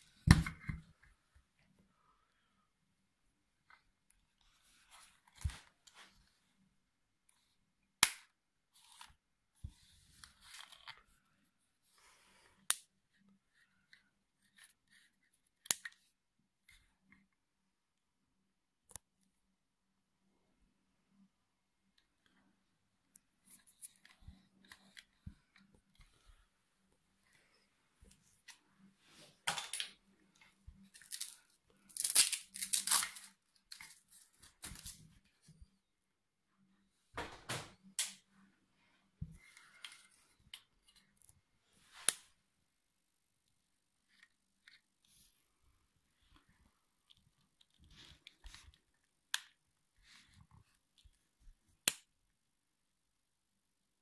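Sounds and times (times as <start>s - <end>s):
fabric strap tearing open: 31.0s - 33.4s.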